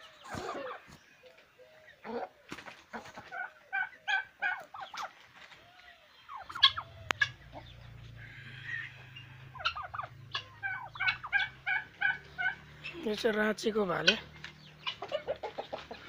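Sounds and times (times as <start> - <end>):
chickens and turkeys calling: 0.0 - 16.0
low steady hum: 6.3 - 13.0.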